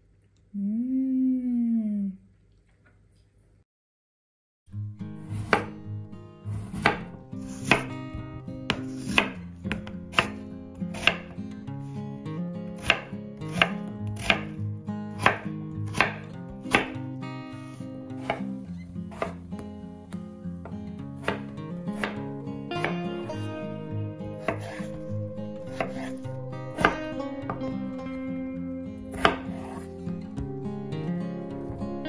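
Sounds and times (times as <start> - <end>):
background music: 4.8 - 32.0
knife chopping on cutting board: 5.3 - 5.7, 6.5 - 11.4, 12.7 - 14.6, 15.2 - 17.0, 18.2 - 18.5, 19.1 - 19.4, 21.2 - 23.0, 24.4 - 24.8, 25.7 - 26.2, 26.8 - 27.6, 29.1 - 29.8.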